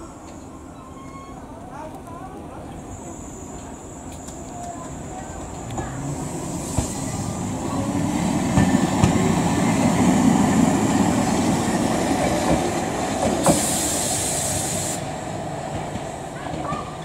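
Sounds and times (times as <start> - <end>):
tram wheels rumbling on rails: 2.4 - 17.0
high hiss: 6.0 - 15.6.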